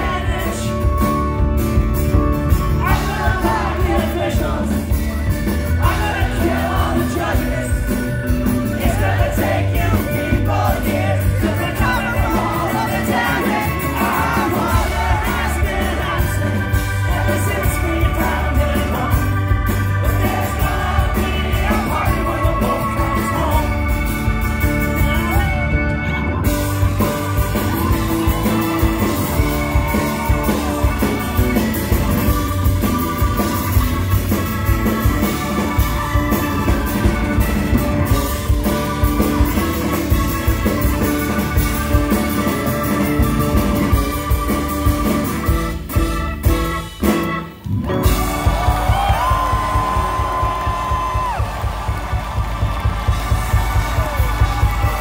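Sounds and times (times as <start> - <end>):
lead vocal singing: 0.0 - 1.2, 2.6 - 24.4
live rock band playing: 0.0 - 55.0.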